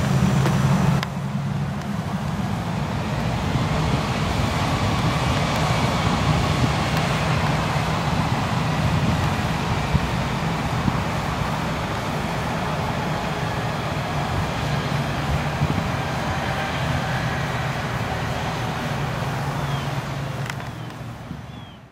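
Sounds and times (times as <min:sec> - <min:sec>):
jet engines in reverse thrust: 0:00.0 - 0:21.9.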